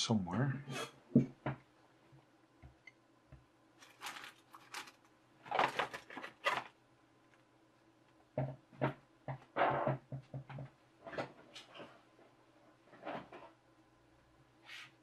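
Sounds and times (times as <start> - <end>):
rustling and scraping: 3.8 - 6.8, 11.0 - 13.6.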